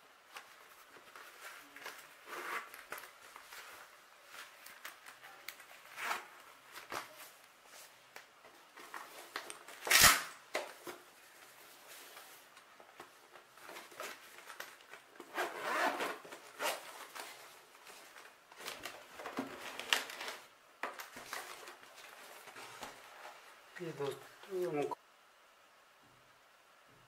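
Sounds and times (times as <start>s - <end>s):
fabric bag rustling: 13.4s - 20.5s
zipper being pulled open: 15.3s - 16.9s.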